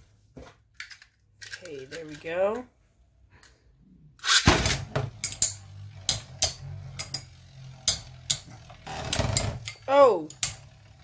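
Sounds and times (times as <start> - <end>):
spinning tops launched: 4.2 - 8.4
spinning tops whirring: 4.2 - 11.0.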